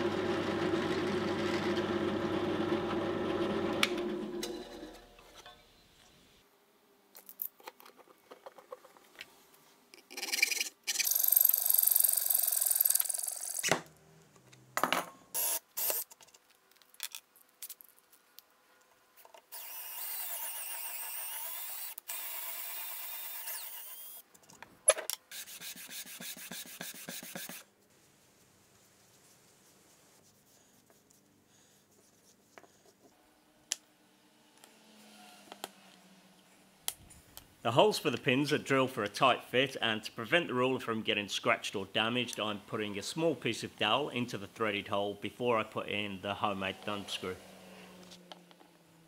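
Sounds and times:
sandpaper strokes on wood: 0:25.3 - 0:27.7.

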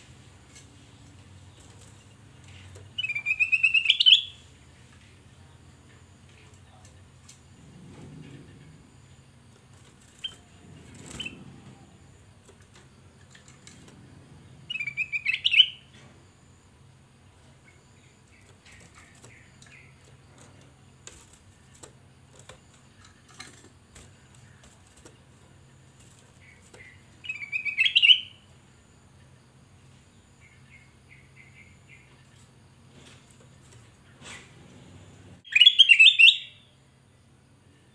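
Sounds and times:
soft bird chirps: 0:00.0 - 0:09.2, 0:10.0 - 0:34.8, 0:35.4 - 0:37.9
bird warbling: 0:10.2 - 0:11.8.

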